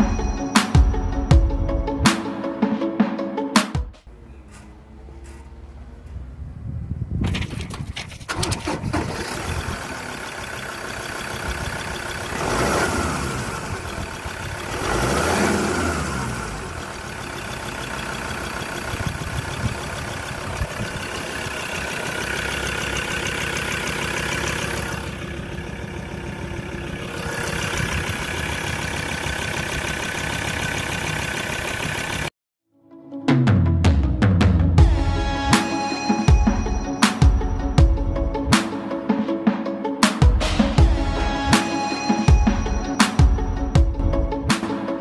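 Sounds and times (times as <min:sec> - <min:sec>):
diesel engine idling and revving: 0:04.0 - 0:32.4, 0:40.1 - 0:44.9.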